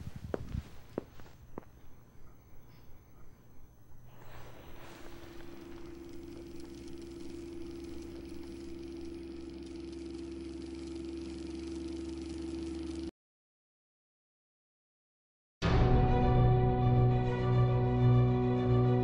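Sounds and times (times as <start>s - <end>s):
deep hum and hiss: 0.0s - 11.0s
low drone with held tone: 2.0s - 11.0s.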